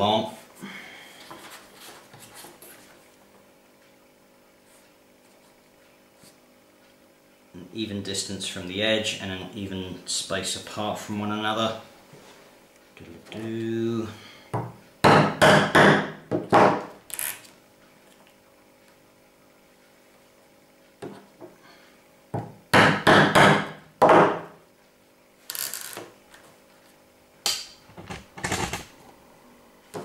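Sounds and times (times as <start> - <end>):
hammer striking leather hole punch: 15.0 - 16.9, 22.7 - 24.5.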